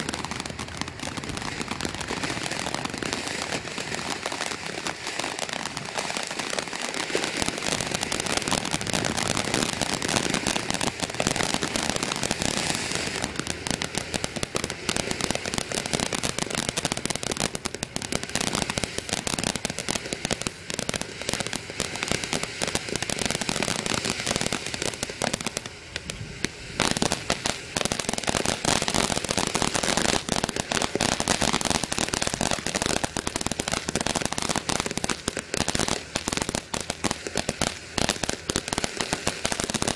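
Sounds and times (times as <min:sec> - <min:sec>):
firework crackling and popping: 0:00.0 - 0:39.9.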